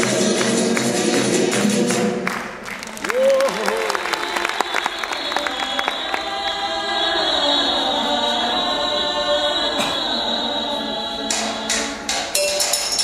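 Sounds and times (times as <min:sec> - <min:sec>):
voices singing held notes: 0:03.9 - 0:13.0.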